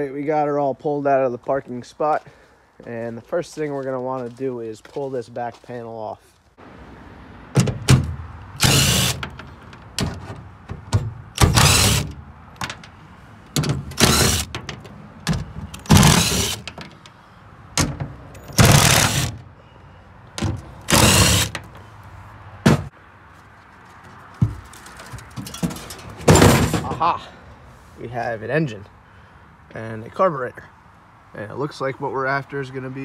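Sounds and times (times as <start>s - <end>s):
impact driver hammering: 7.6s - 9.4s, 10.8s - 12.2s, 13.6s - 14.6s, 15.3s - 16.7s, 18.6s - 19.4s, 20.4s - 21.6s.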